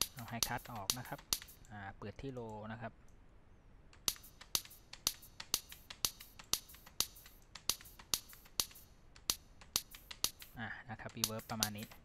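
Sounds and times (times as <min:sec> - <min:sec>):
sharp handclap snare hits: 0:00.0 - 0:01.6, 0:04.1 - 0:10.6.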